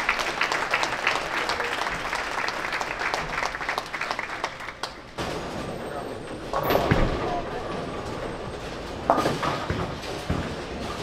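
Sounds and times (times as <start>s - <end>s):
crowd applauding: 0.0s - 5.1s.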